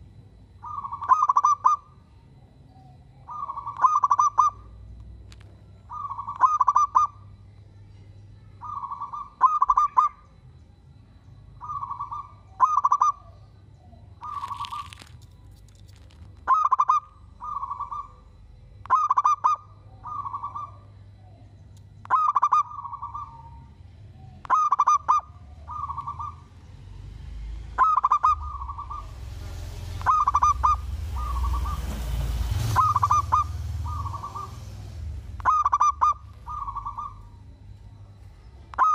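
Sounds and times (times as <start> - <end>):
low rumble and hiss: 0.0 - 38.9
dove cooing: 0.6 - 1.9, 3.3 - 4.8, 5.9 - 7.3, 11.6 - 13.4, 14.2 - 15.1, 15.9 - 20.9, 22.1 - 26.6, 27.8 - 29.2, 29.9 - 32.0, 32.7 - 37.6.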